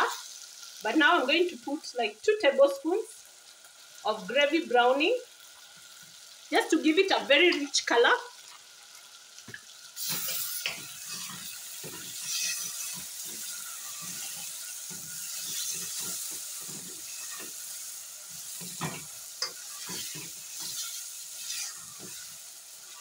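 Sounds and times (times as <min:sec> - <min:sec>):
meat sizzling in a pot: 0:00.0 - 0:23.0
wooden spoon scraping a pot: 0:10.0 - 0:17.6, 0:18.3 - 0:23.0.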